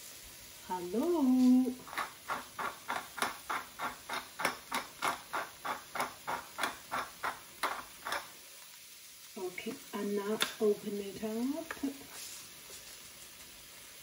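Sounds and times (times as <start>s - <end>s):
pepper mill grinding: 1.0s - 8.4s.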